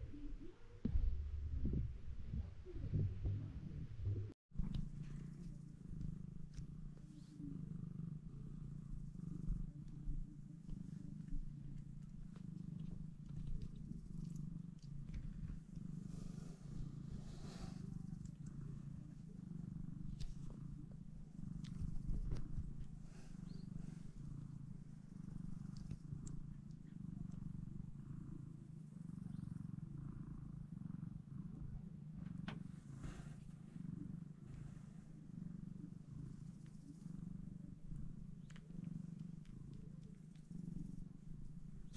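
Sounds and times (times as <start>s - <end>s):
cat purring: 0.0s - 41.9s
faint rustles: 0.9s - 41.9s
small ticks: 4.6s - 6.7s, 9.6s - 15.8s, 18.1s - 18.6s, 20.0s - 20.6s, 21.6s - 23.7s, 25.3s - 27.5s, 38.0s - 41.1s.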